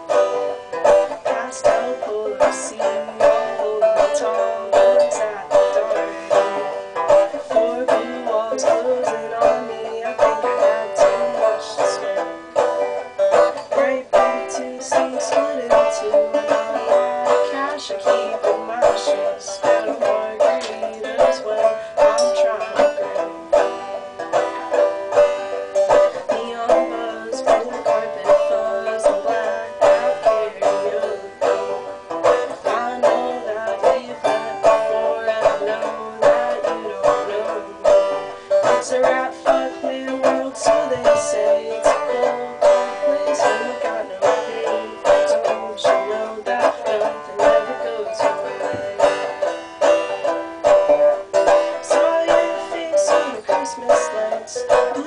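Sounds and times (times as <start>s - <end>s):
banjo playing bluesy tune: 0.0s - 55.0s.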